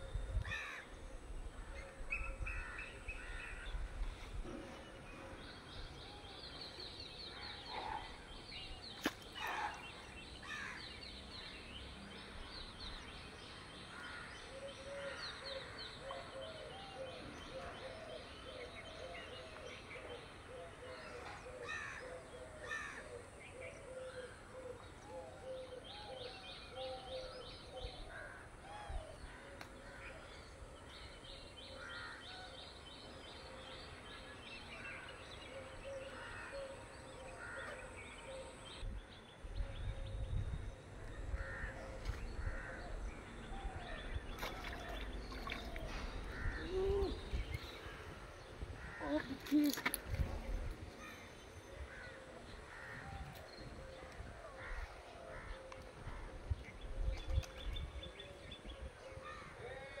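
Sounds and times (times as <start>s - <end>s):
birds chirping: 35.1s - 59.7s.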